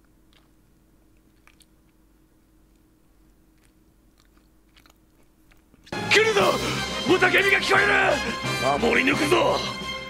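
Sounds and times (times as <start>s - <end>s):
crunchy chewing clicks: 0.0s - 6.0s.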